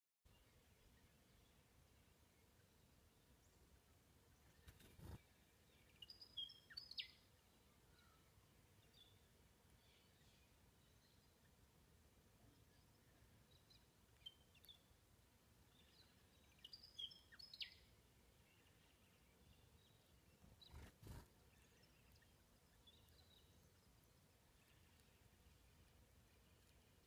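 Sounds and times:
faint bird chirps: 4.3 - 11.7, 12.4 - 15.0, 15.6 - 27.0.

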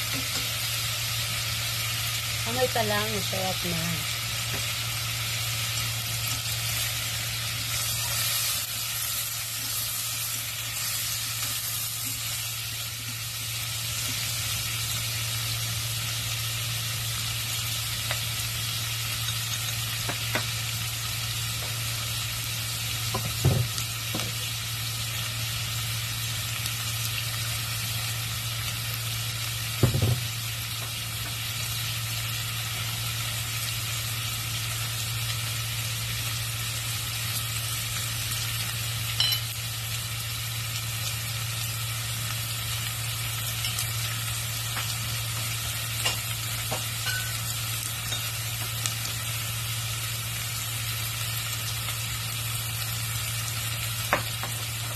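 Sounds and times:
food sizzling in a saucepan: 0.0 - 54.9.

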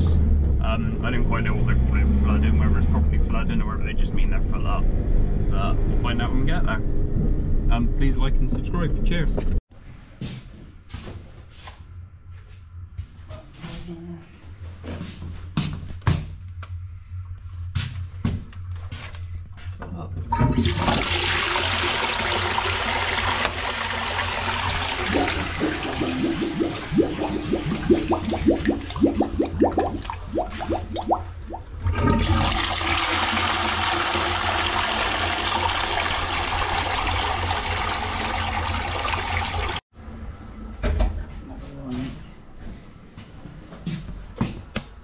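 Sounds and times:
toilet bowl gurgling: 20.3 - 39.8
toilet flushing: 20.3 - 39.8.

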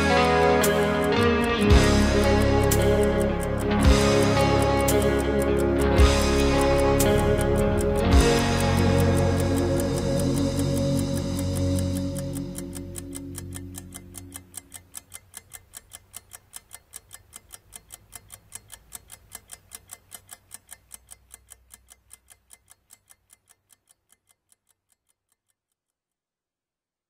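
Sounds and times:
music: 0.0 - 14.6
clock ticking rapidly: 0.0 - 25.6.

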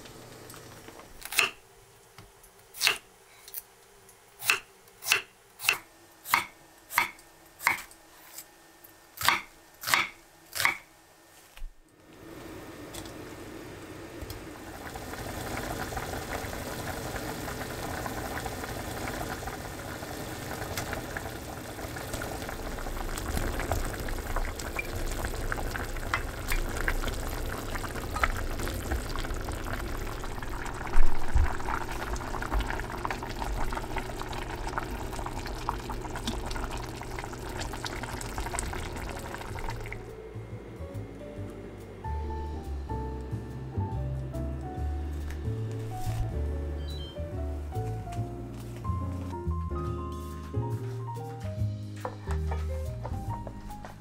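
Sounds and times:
stew bubbling in a pot: 14.3 - 40.1.

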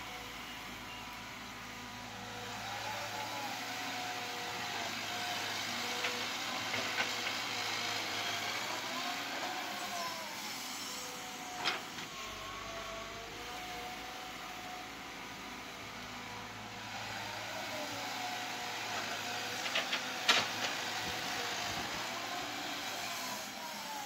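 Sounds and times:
excavator engine and hydraulics: 0.0 - 24.0.

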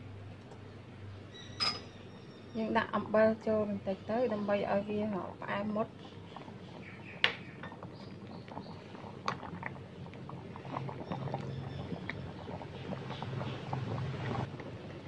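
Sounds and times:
soft bubbling: 3.8 - 15.0.

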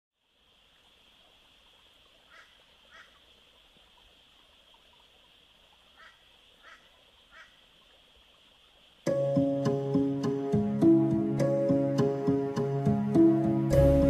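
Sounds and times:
short animal calls: 2.2 - 3.2, 5.9 - 7.6.

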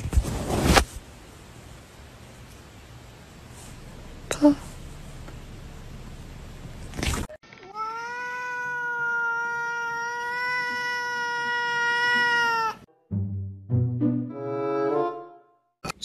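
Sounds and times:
cat long meow: 7.6 - 12.9.

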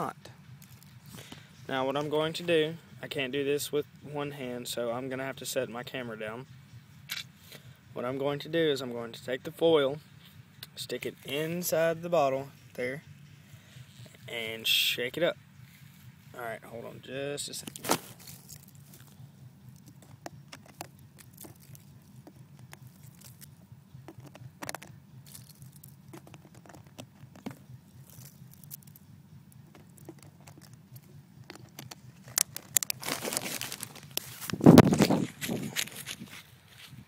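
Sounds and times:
foil crinkling in plastic bottle: 17.6 - 19.2, 20.0 - 23.5, 31.6 - 36.4
phone handling noise: 19.8 - 28.9, 29.6 - 36.2.

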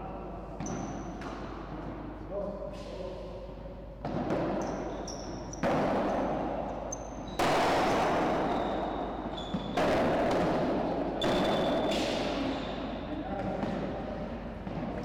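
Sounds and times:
padel ball hits echoing: 4.0 - 4.9, 5.6 - 6.8, 7.4 - 12.8.

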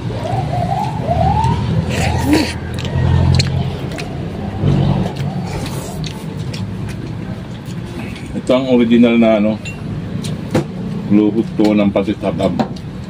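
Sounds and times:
engine humming: 0.0 - 13.0.

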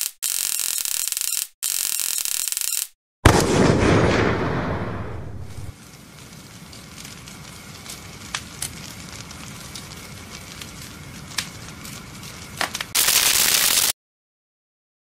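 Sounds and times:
sharp pops of fire: 3.2 - 13.9
fire crackling and rumbling: 3.3 - 13.9.

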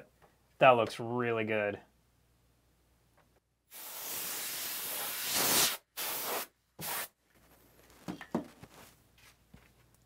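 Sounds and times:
compressed air can spraying: 3.7 - 7.1.

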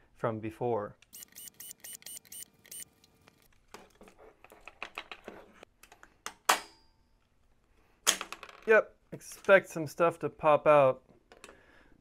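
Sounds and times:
plastic parts clicking and knocking: 3.4 - 6.7.

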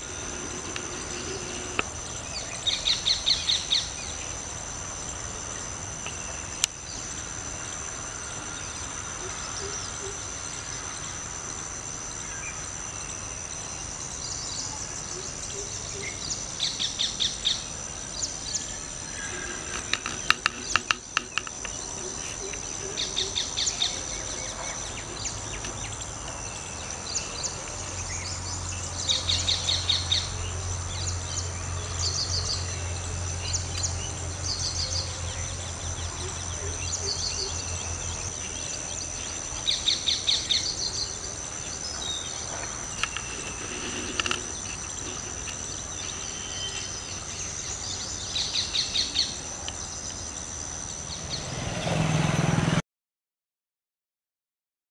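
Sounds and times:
birds calling: 0.0 - 4.5, 14.1 - 32.8, 33.4 - 50.3
insects droning: 0.0 - 52.8.

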